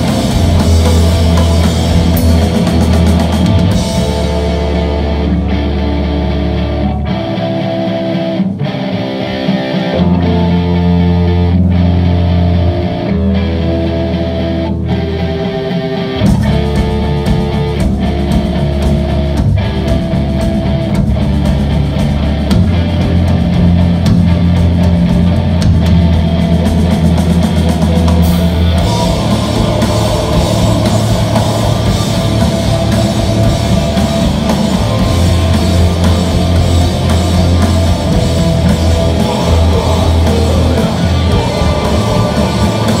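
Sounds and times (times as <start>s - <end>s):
rock band playing live: 0.0s - 43.0s.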